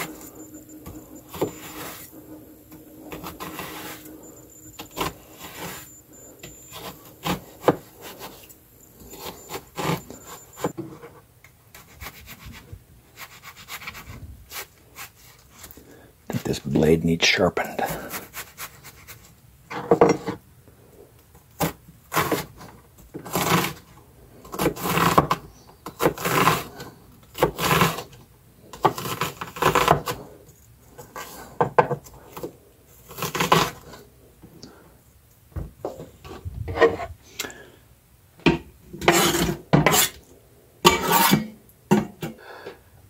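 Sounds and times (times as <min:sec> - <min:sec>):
knife cutting onion: 0:00.0 - 0:10.7, 0:21.6 - 0:23.9, 0:24.5 - 0:28.2, 0:28.8 - 0:30.2, 0:32.4 - 0:34.0, 0:39.0 - 0:40.2, 0:40.9 - 0:41.5.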